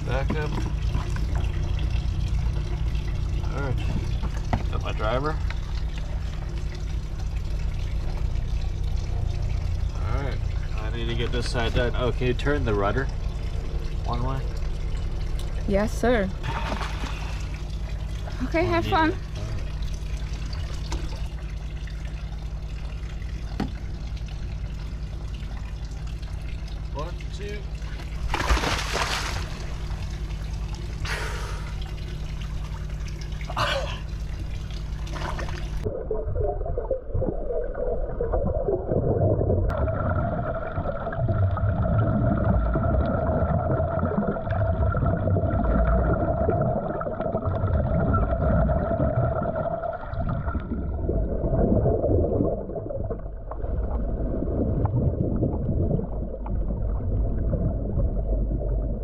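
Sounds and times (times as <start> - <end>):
steady hum: 0.0 - 59.0
diver splashing into water: 28.3 - 29.8
underwater regulator bubbles gurgling: 29.5 - 59.0.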